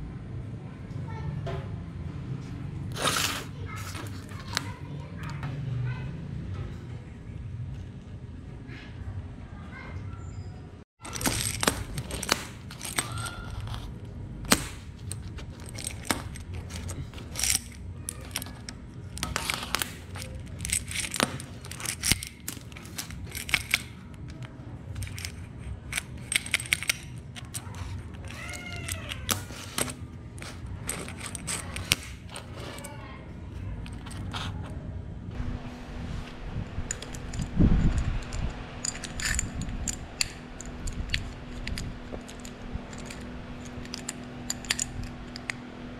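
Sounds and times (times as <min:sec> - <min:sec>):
chain clinking and rattling on metal: 0:11.0 - 0:34.7, 0:36.6 - 0:45.7.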